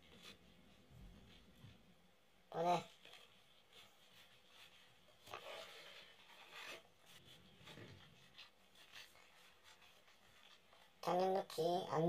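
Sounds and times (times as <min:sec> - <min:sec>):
trading cards rubbing and swishing: 0:03.0 - 0:11.0.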